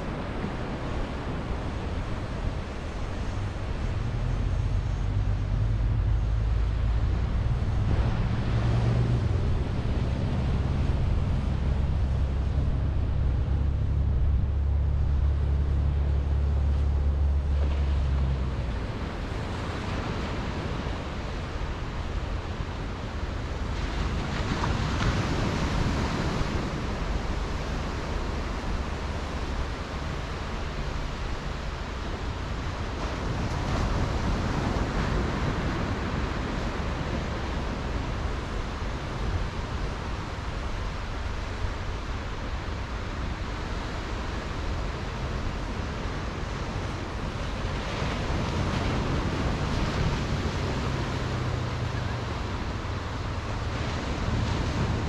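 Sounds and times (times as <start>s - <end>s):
low rumble: 1.4s - 20.5s
small waves breaking on sand: 14.9s - 55.0s.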